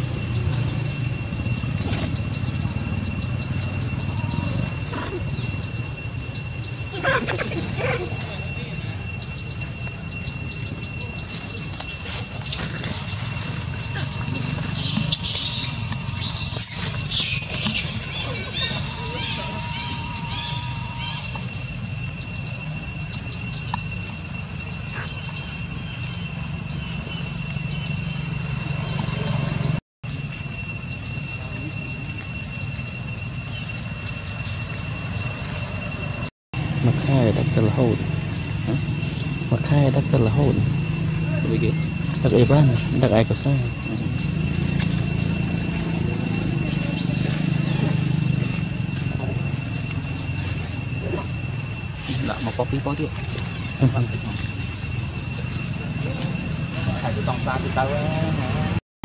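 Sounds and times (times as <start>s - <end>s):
insects chorus pulsing: 0.0s - 58.8s
monkey squealing: 4.0s - 5.5s, 6.9s - 9.1s, 12.0s - 21.6s.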